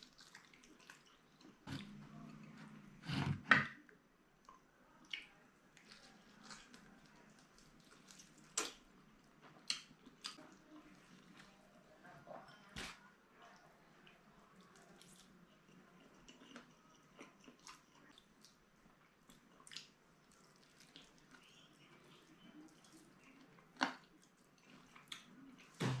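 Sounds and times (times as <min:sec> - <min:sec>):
chewing with wet clicks: 0:00.0 - 0:01.6, 0:04.4 - 0:10.9, 0:14.0 - 0:25.8.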